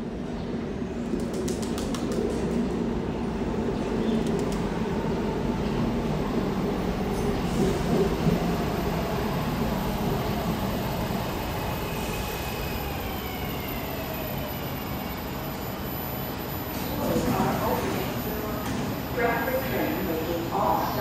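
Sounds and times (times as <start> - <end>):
train wheels rumbling on rails: 1.0 - 13.7.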